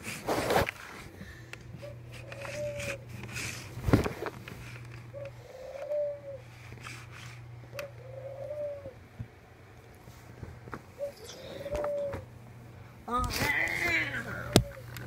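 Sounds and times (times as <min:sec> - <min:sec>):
steady low hum: 0:00.0 - 0:15.0
dove cooing: 0:01.7 - 0:03.7, 0:05.0 - 0:09.2, 0:11.0 - 0:12.4, 0:13.6 - 0:15.0.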